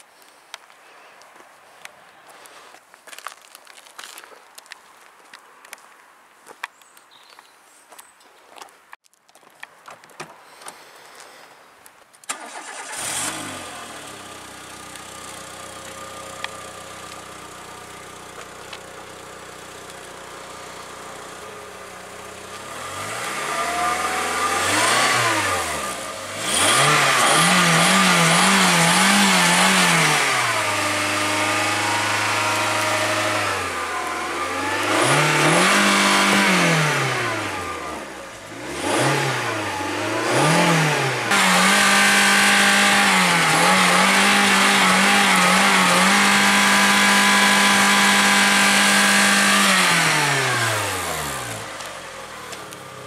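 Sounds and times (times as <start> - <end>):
car engine idling and revving: 12.3 - 53.0.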